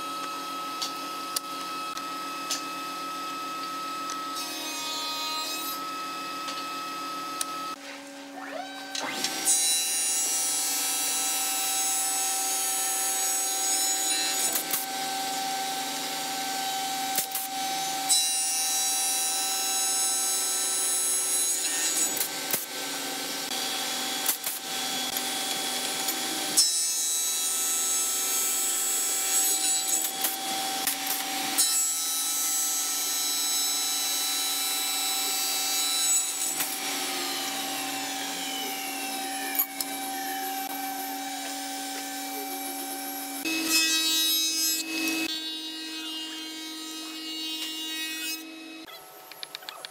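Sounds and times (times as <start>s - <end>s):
cutter head whining: 33.8s - 44.1s.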